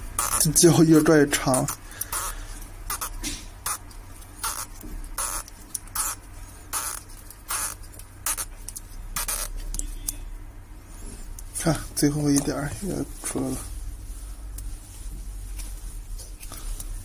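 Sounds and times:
steady low hum: 0:00.0 - 0:17.0
adhesive strip peeling: 0:00.2 - 0:10.2.

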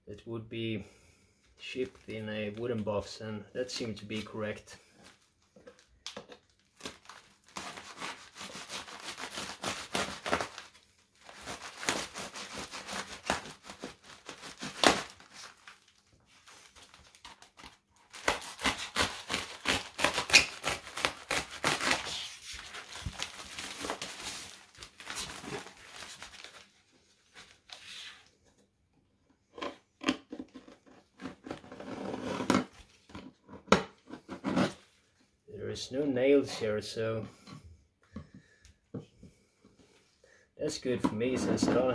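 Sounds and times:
tape ripping off a box: 0:06.1 - 0:15.8, 0:16.8 - 0:26.6
knife cutting tape: 0:18.1 - 0:22.8.

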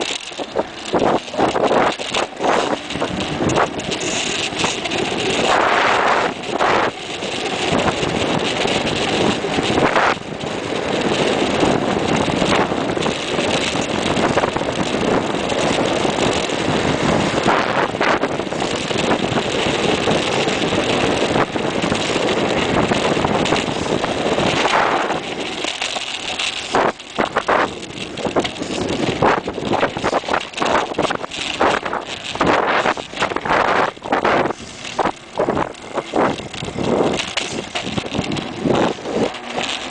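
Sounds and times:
bike tyre noise on tarmac: 0:00.0 - 0:39.9
wind rushing over microphone: 0:00.0 - 0:39.9.

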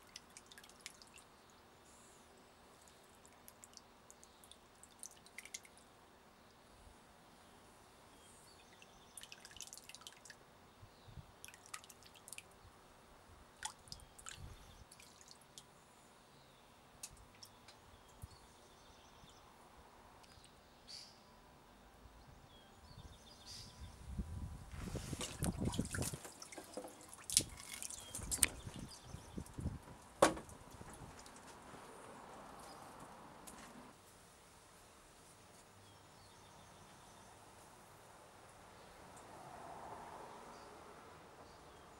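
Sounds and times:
water dripping: 0:00.0 - 0:01.6, 0:02.8 - 0:05.9, 0:08.7 - 0:10.4, 0:11.4 - 0:12.5, 0:13.6 - 0:15.7, 0:25.3 - 0:29.8, 0:30.4 - 0:31.5
water splashing and draining: 0:25.2 - 0:28.9.

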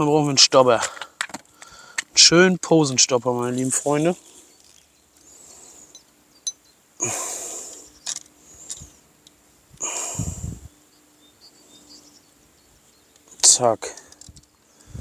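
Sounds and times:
sharp nasal breaths: 0:00.9 - 0:02.1, 0:05.2 - 0:06.0, 0:09.8 - 0:10.7.

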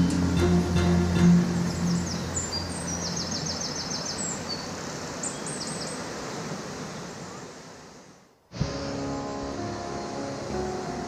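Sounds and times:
bird trill: 0:00.0 - 0:04.7
waterfall rushing: 0:00.0 - 0:11.0.

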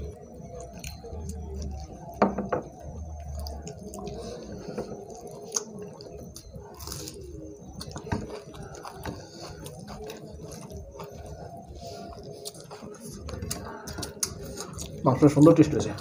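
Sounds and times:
chewing: 0:00.0 - 0:16.0.

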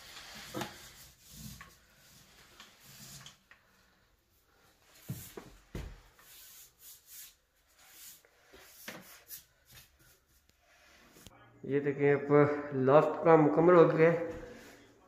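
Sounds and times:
paint roller rubbing strokes: 0:00.0 - 0:11.2.

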